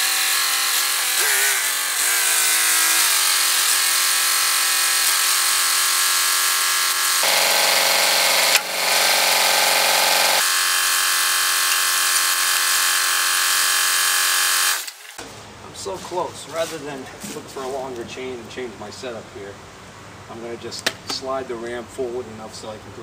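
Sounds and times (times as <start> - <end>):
tractor engine with mechanical whine: 7.0 - 10.4.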